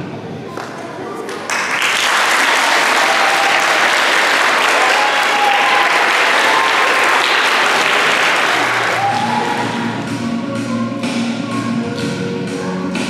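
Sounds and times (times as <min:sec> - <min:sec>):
audience applauding: 0:01.3 - 0:10.0.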